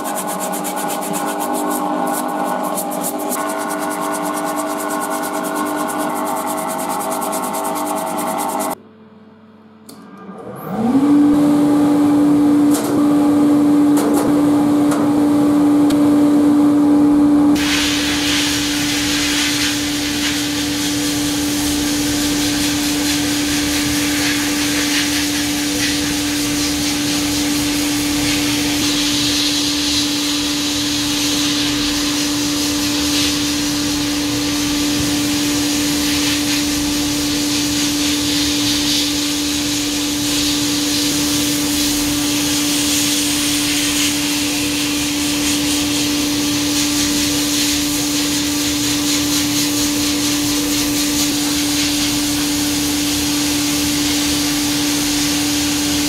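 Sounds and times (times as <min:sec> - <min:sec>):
abrasive blasting hiss: 0:17.6 - 0:26.4.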